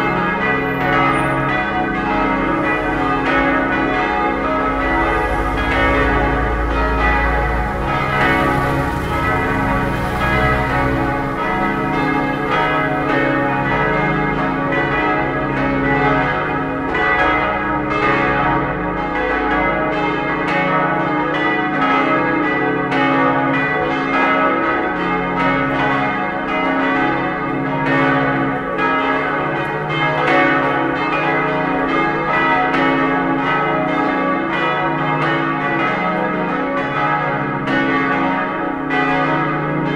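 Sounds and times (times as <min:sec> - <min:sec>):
church bells pealing: 0:00.0 - 0:39.9
low rumble: 0:04.4 - 0:11.8.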